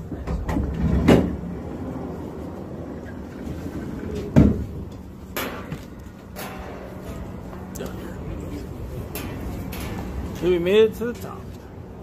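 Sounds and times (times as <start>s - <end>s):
cable car cabin rumbling: 0.0s - 5.4s.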